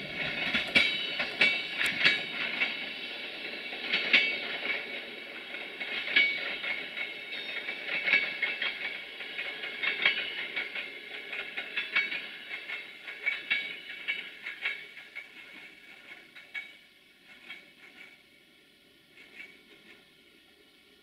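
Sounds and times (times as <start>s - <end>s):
train wheels clicking over rail joints: 0.0s - 21.0s
wheel squeal against rails: 5.8s - 18.3s, 19.1s - 20.1s.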